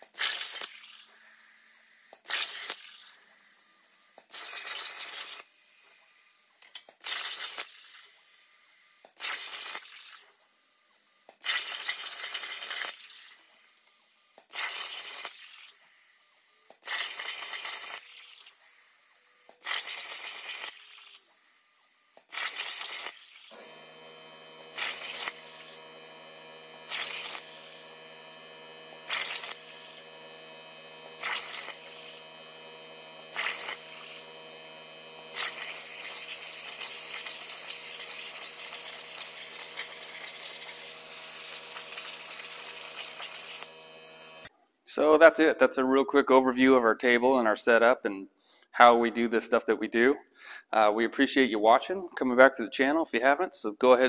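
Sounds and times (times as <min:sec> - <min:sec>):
plasma cutter hissing: 0:22.3 - 0:44.5
many-toned machine hum: 0:23.5 - 0:44.5.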